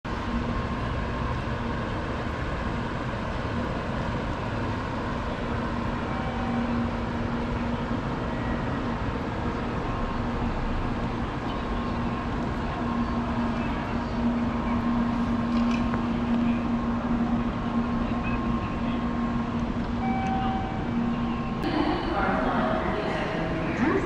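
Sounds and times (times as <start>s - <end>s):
constant low hum: 0.1s - 24.0s
street traffic: 0.1s - 24.0s.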